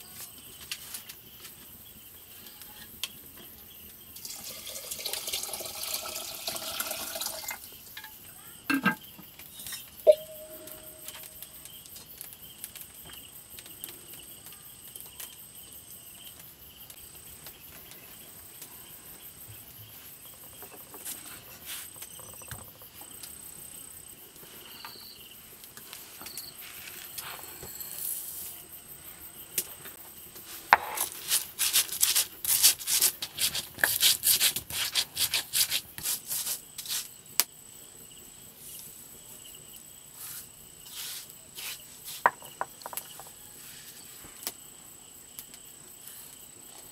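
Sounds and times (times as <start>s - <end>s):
insects chirping: 0.0s - 46.9s
stone knocking on grinding stone: 42.2s - 43.3s.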